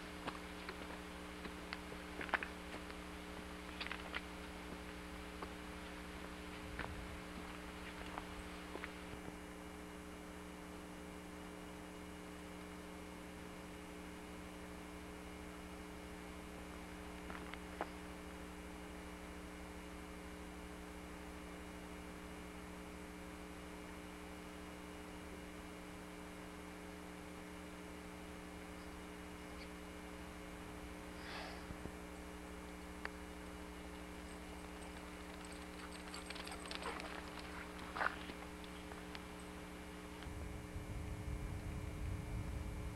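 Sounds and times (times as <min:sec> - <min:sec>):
steady electrical hum: 0:00.0 - 0:42.9.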